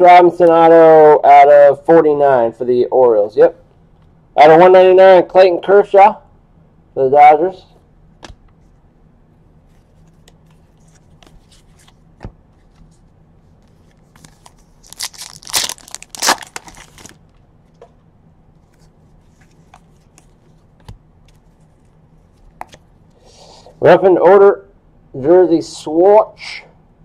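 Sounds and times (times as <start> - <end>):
foil pack ripping and crinkling: 14.1 - 17.2.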